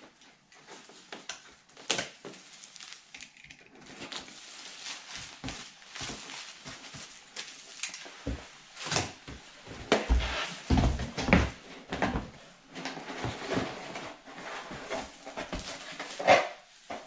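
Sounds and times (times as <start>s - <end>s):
plastic wrap crinkling: 0.6s - 9.3s.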